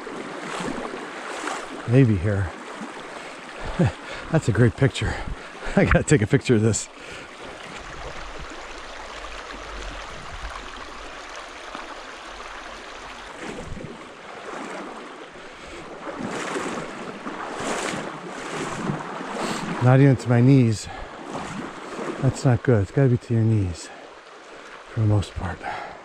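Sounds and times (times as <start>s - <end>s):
stream running over rocks: 0.0s - 26.0s
wind rumbling on microphone: 7.6s - 11.8s, 13.3s - 14.1s.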